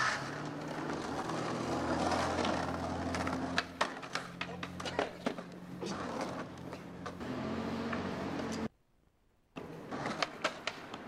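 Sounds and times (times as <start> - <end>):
skateboard wheels rolling on concrete: 0.0 - 8.8, 9.5 - 11.0
skateboard clacking on concrete steps: 0.5 - 5.6, 9.6 - 11.0.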